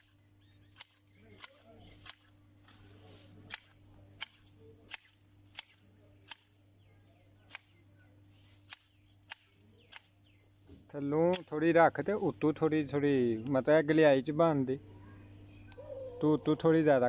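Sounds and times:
hedge shears snipping twigs: 0.7 - 6.6, 7.4 - 10.5, 11.1 - 12.6.

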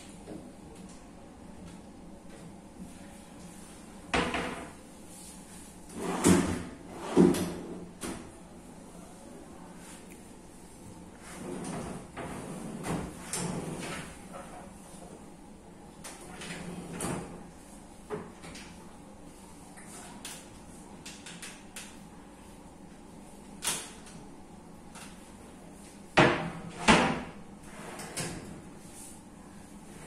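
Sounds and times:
cabinet doors and drawers knocking: 26.2 - 27.4.

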